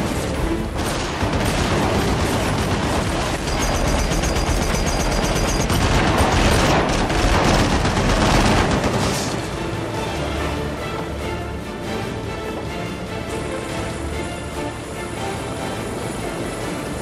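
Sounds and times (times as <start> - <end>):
machine gun firing bursts: 0.0 - 9.4.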